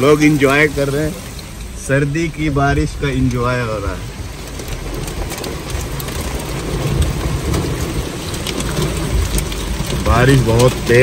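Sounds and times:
heavy rain on car roof: 0:00.0 - 0:11.0.

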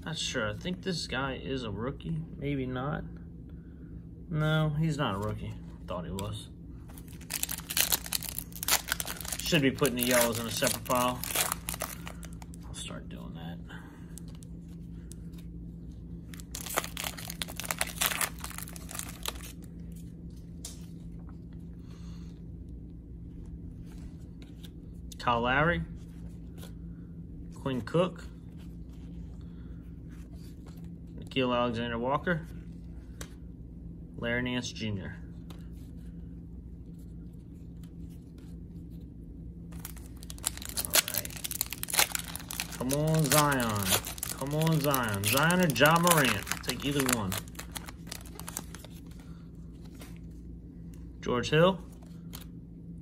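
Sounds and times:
faint low hum: 0:00.0 - 0:53.0
foil wrapper tearing and crinkling: 0:07.0 - 0:12.6, 0:16.3 - 0:19.7, 0:39.7 - 0:49.1.

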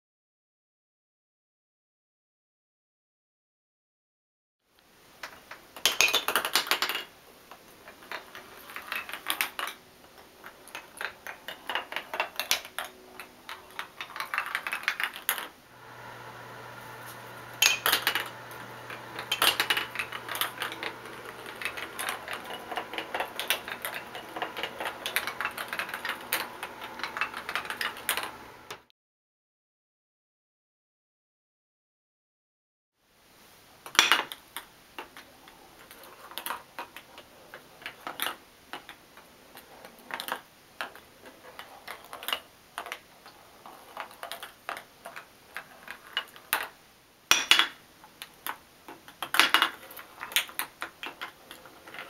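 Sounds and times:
low steady hum: 0:15.7 - 0:28.8.

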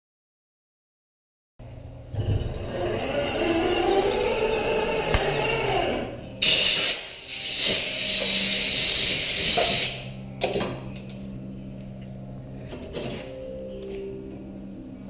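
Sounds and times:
compressed air blasts: 0:06.4 - 0:10.2.

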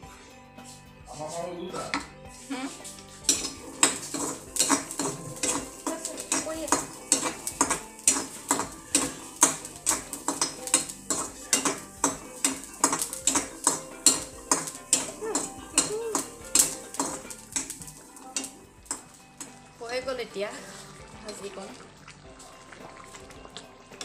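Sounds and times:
metal spoon scraping a pan: 0:01.8 - 0:19.7.

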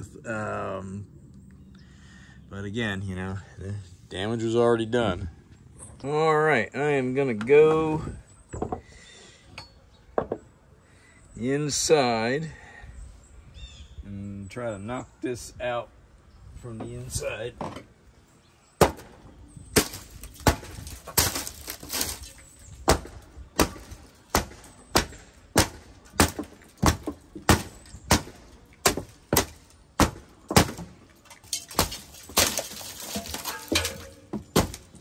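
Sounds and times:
hammer striking rotten wood: 0:18.8 - 0:19.2, 0:19.8 - 0:22.1, 0:22.8 - 0:31.0, 0:31.7 - 0:35.0
wood splintering and breaking: 0:18.8 - 0:35.0.

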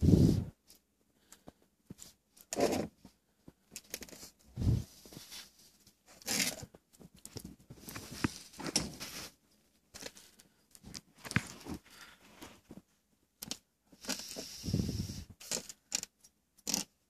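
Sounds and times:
scraping and rustling: 0:01.3 - 0:12.9.

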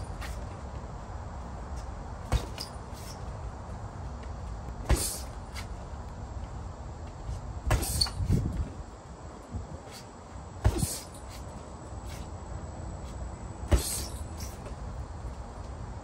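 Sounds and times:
feet scuffing: 0:00.0 - 0:00.5, 0:04.9 - 0:05.9
punches thudding on punching bag: 0:02.2 - 0:02.8, 0:04.8 - 0:05.7, 0:07.6 - 0:08.6, 0:10.6 - 0:11.2, 0:13.6 - 0:14.7.

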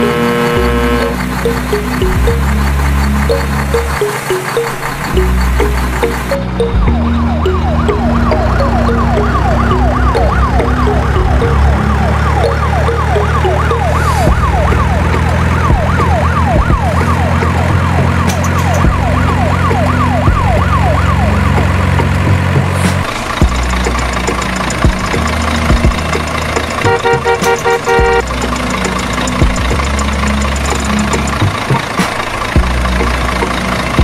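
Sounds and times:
steady low drone: 0:00.0 - 0:26.8
electronic siren yelping: 0:03.3 - 0:21.8.

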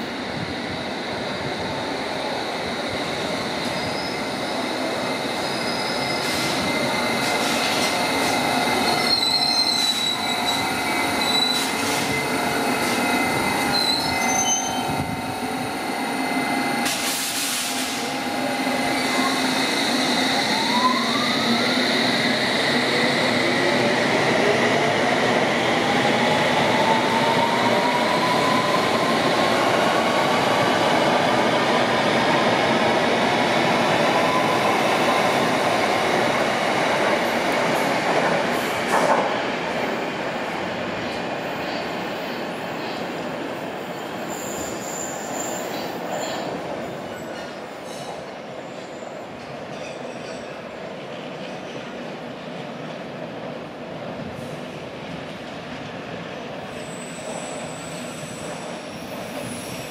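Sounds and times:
train wheel squeal: 0:02.6 - 0:23.8, 0:43.8 - 0:50.6, 0:56.6 - 0:59.9.

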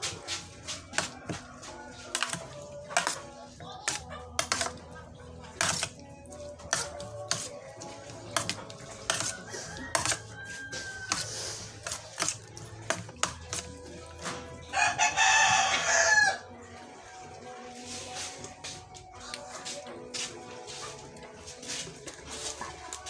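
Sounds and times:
metal spoon scraping a steel tray: 0:02.0 - 0:06.0, 0:06.6 - 0:13.8.

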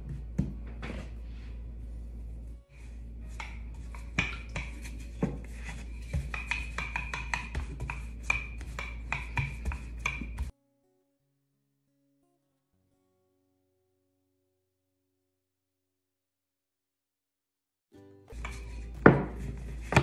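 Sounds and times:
rolling pin knocking on stone: 0:03.4 - 0:10.5, 0:18.4 - 0:20.0.

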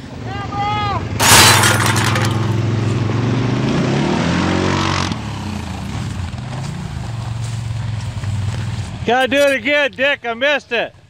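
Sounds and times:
atv engine revving: 0:01.2 - 0:09.4.

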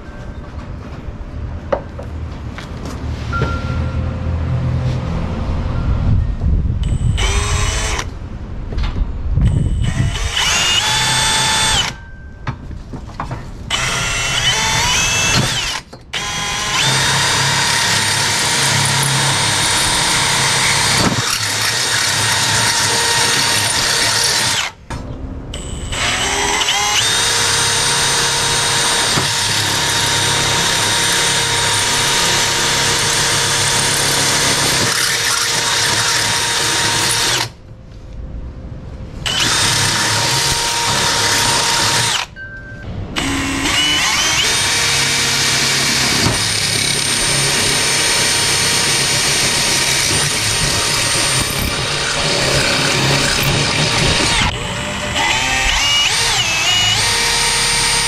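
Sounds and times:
cordless drill boring into metal: 0:07.2 - 0:08.1, 0:09.8 - 0:12.0, 0:13.7 - 0:24.8, 0:25.9 - 0:37.5, 0:39.3 - 0:42.3, 0:43.2 - 0:58.0.

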